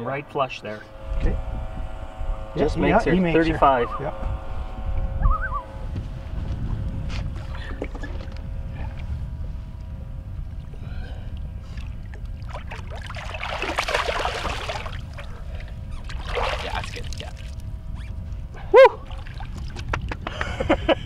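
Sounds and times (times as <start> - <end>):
water and wind rumbling: 0.0 - 21.0
water splashing and gurgling: 10.5 - 17.7, 18.9 - 20.2.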